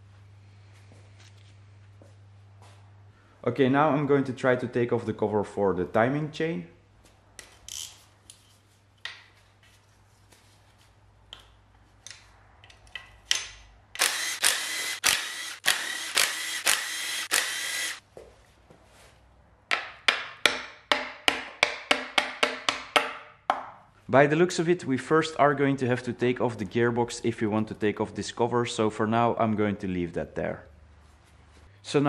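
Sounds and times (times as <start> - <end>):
cordless impact driver running: 14.0 - 18.0.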